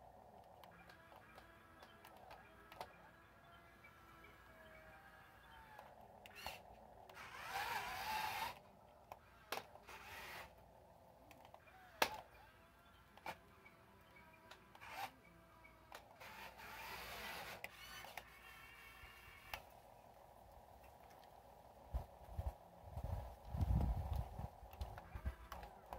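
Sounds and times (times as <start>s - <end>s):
small electric motor whining: 0.0s - 20.2s, 22.0s - 25.9s
sharp clicks: 0.3s - 4.8s, 5.4s - 10.6s, 11.2s - 12.5s, 13.1s - 20.2s, 23.4s - 25.9s.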